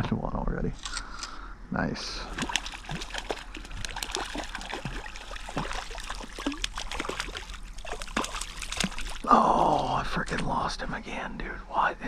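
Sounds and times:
fish splashing in water: 2.3 - 9.6.

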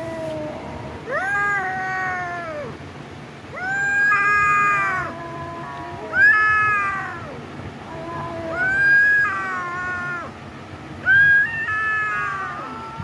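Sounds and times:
kittens meowing: 3.6 - 10.4, 11.0 - 13.0.

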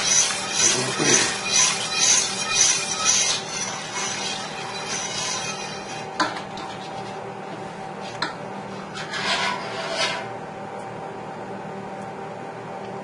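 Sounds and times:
whisk scraping pot sides: 0.0 - 10.3
steady background hum: 0.0 - 13.0.

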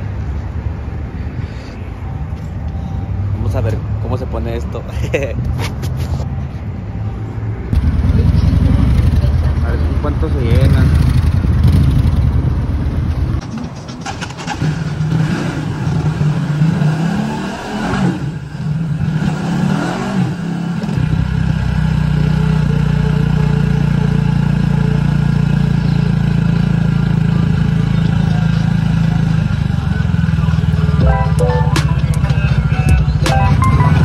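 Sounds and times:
motorcycle engine: 7.7 - 17.1, 20.5 - 34.0.

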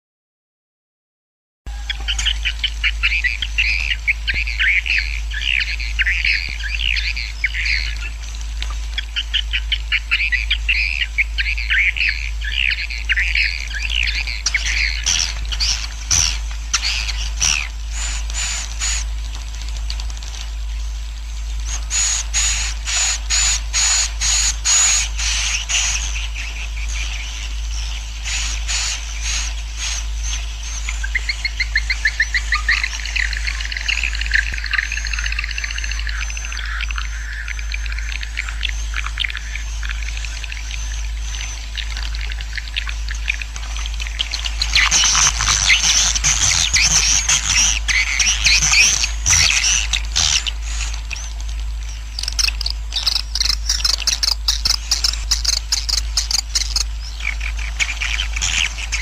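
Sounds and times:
steady low hum: 1.7 - 59.0
swiftlets twittering chirps: 51.9 - 57.2
higher evenly spaced chirps: 52.1 - 56.9.

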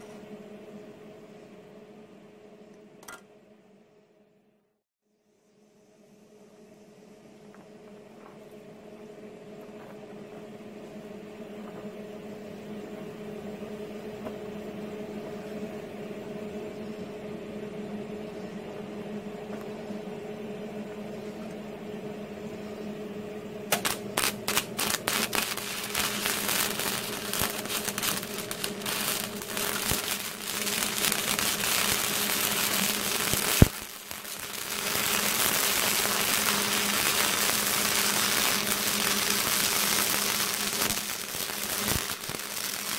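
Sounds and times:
steady hum: 0.0 - 42.9
sharp snap: 23.7 - 24.6
welding arc crackling: 23.7 - 42.9.

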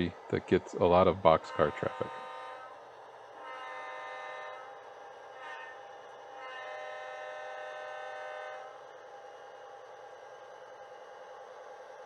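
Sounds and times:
model locomotive air horn: 1.2 - 8.9.

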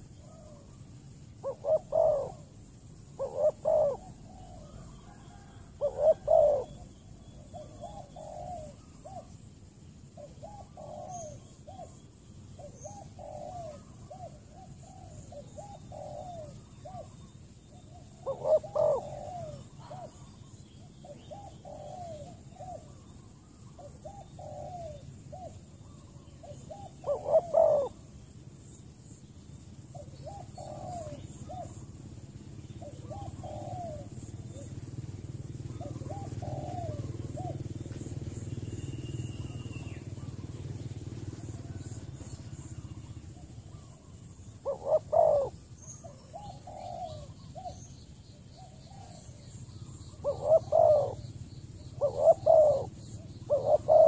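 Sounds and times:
doves cooing: 0.0 - 54.0.

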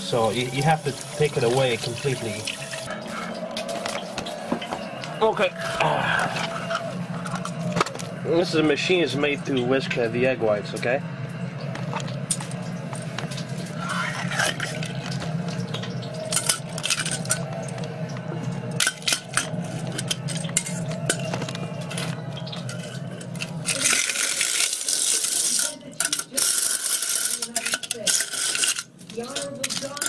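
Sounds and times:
egg beater clattering in metal bowl: 22.6 - 30.0.

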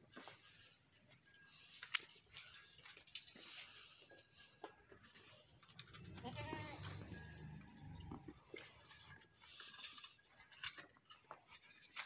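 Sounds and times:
goat bleating: 6.0 - 7.2.

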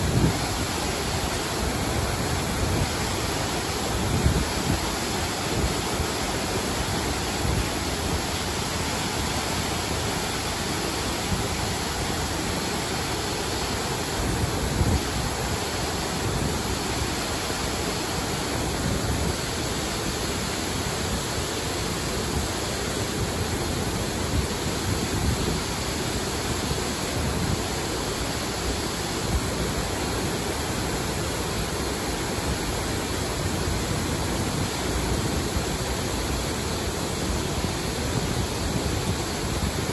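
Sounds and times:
waterfall rushing into stream: 0.0 - 39.9.

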